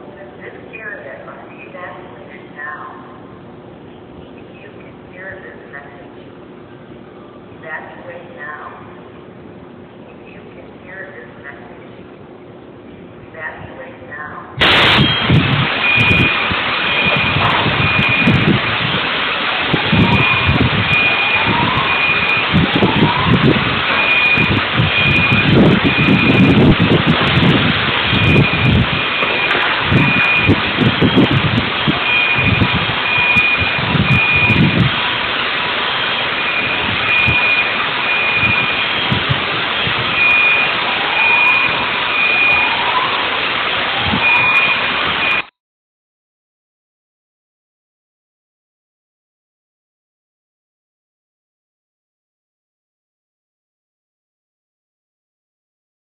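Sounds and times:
loud steady roar: 0:00.0 - 0:45.5
low rumbling: 0:00.0 - 0:45.5
alarm beeping: 0:14.6 - 0:45.5
steady rushing noise: 0:14.6 - 0:45.5
faint high-pitched alarm beep: 0:14.9 - 0:18.4, 0:32.0 - 0:34.7, 0:36.1 - 0:39.2.

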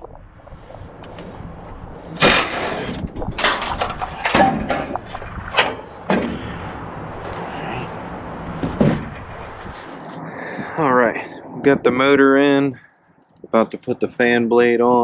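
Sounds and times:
wind on microphone: 0:00.0 - 0:13.9
knocks and clanks of tools on metal: 0:02.2 - 0:05.0.

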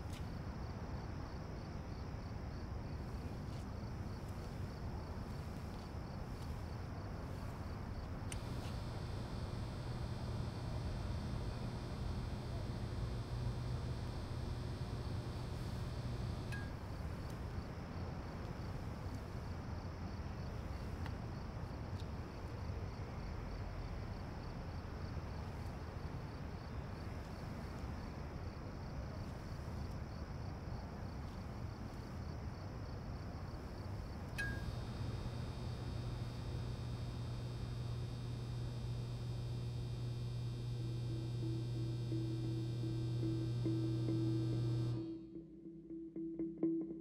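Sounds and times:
lamp electrical hum: 0:00.0 - 0:45.3
faint pulsing high chirring: 0:00.0 - 0:47.0
steady low rumble: 0:04.1 - 0:17.2, 0:34.6 - 0:45.3.

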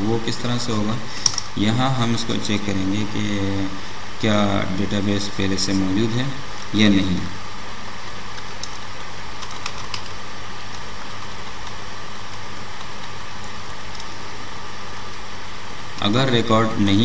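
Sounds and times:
recording hum and hiss: 0:00.0 - 0:17.0
faint keyboard clicks: 0:08.3 - 0:14.2.

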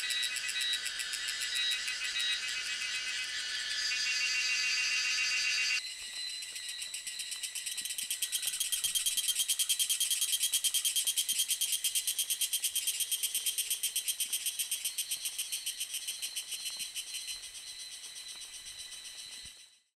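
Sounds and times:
cicada buzzing: 0:00.0 - 0:05.8.

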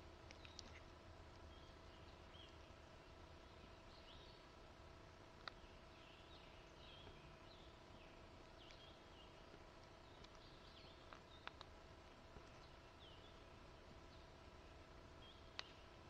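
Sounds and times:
songbird chirps and calls: 0:00.0 - 0:04.6, 0:05.4 - 0:16.0
small sharp clicks: 0:00.2 - 0:01.5, 0:05.4 - 0:05.6, 0:09.8 - 0:11.8, 0:15.5 - 0:15.8.

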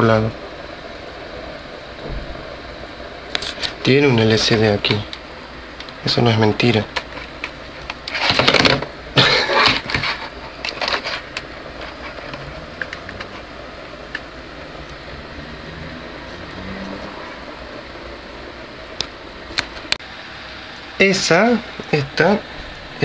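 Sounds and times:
steady low hum: 0:00.0 - 0:23.0
camcorder handling rubbing and knocking: 0:07.0 - 0:08.9.

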